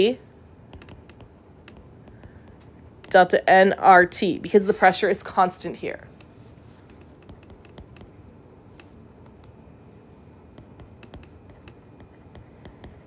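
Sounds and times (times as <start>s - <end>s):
low background hum: 0.0s - 13.0s
stylus tapping on tablet screen: 0.7s - 3.2s, 6.1s - 9.6s, 10.5s - 13.0s.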